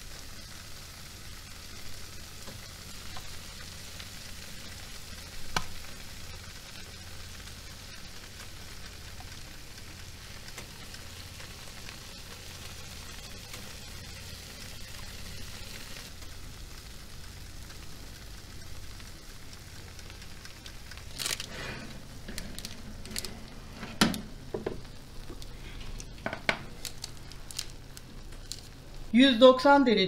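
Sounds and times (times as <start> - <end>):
oil sizzling in a baking tray: 0.0 - 30.0
baking tray knocks and clatters: 23.2 - 24.8, 26.2 - 26.7.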